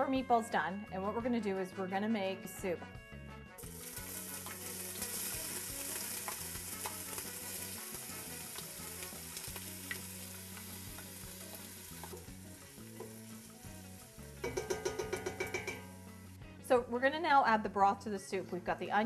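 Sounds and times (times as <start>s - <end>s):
vegetables sizzling in a pot: 3.6s - 16.5s.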